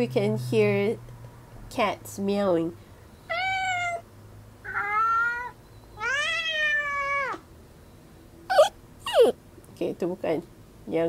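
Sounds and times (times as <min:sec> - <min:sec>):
cat meowing: 0:03.3 - 0:07.4.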